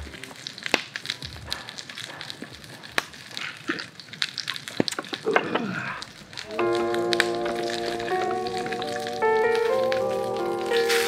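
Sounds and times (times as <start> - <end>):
fat and fire popping: 0.0 - 11.0
steak sizzling in a skillet: 6.4 - 11.0.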